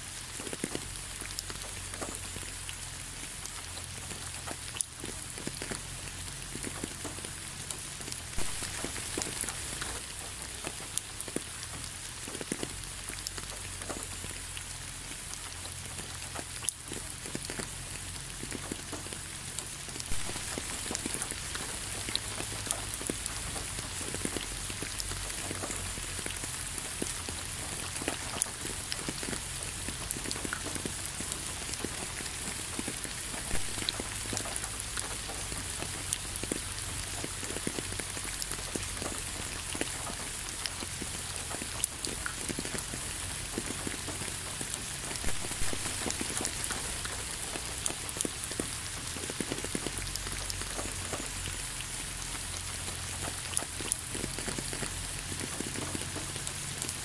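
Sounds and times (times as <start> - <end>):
raindrops ticking: 0.0 - 57.0
steady rain hiss: 0.0 - 57.0.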